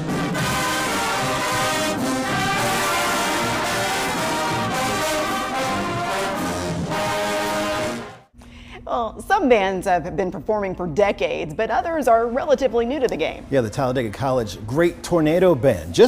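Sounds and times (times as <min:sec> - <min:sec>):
marching band brass playing: 0:00.0 - 0:08.3.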